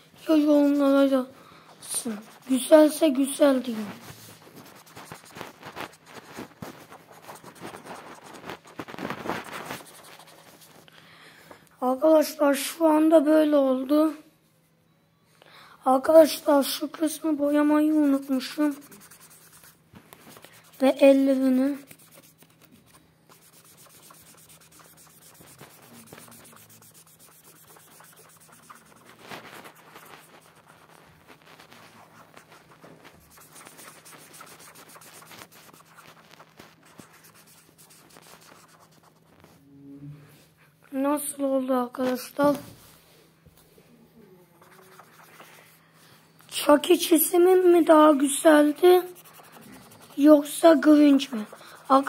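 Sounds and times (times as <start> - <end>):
marker scratching on paper: 0.2 - 1.2, 1.8 - 10.9, 16.3 - 39.6, 44.5 - 45.8, 46.6 - 52.0.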